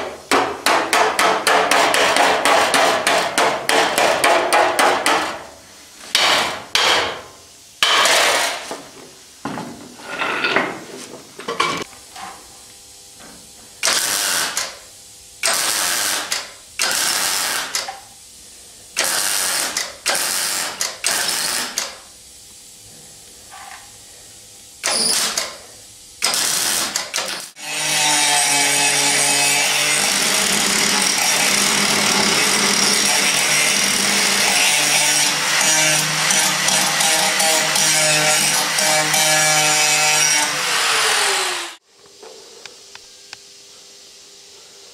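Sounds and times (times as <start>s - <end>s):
welder crackling bursts: 13.8s - 14.8s, 15.4s - 17.9s, 19.0s - 22.0s, 24.8s - 25.6s, 26.2s - 27.6s
angle grinder grinding: 26.4s - 41.8s.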